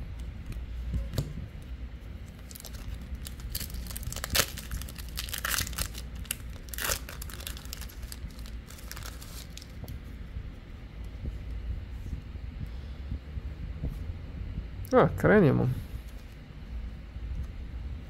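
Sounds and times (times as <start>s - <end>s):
foil wrapper crinkling and tearing: 2.2s - 9.8s.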